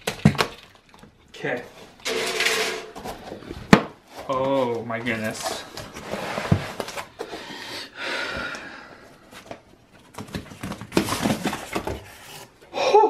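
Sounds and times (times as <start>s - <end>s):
cardboard rustling and scraping: 3.0s - 7.4s, 9.3s - 12.6s
person gasping: 7.3s - 9.1s.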